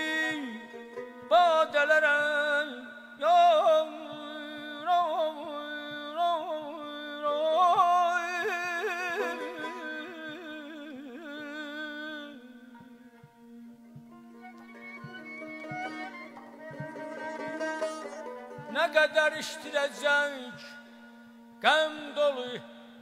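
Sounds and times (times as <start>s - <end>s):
double-reed pipe melody: 12.8s - 20.5s.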